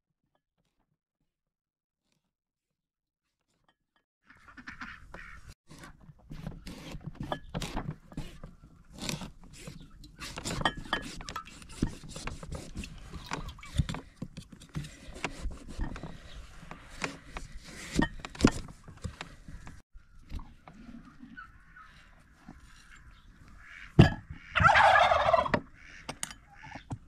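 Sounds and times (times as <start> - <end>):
knife sawing through pumpkin rind: 5.7 - 13.2, 14.7 - 16.2
geese calling: 21.0 - 26.9.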